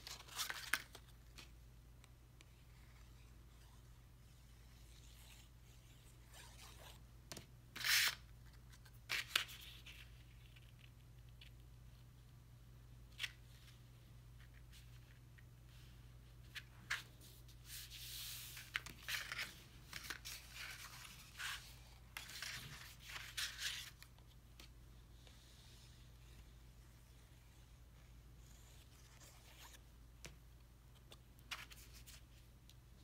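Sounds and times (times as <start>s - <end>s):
paper rustling: 0.0s - 1.6s, 15.8s - 24.7s.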